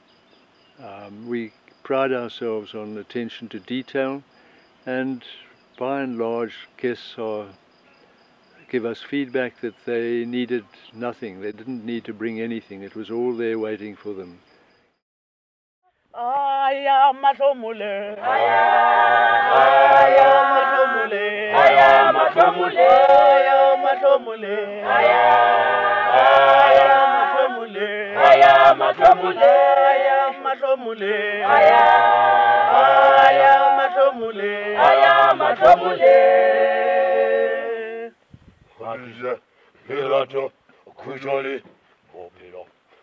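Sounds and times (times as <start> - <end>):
mixed choir singing a cappella: 16.2 - 38.1.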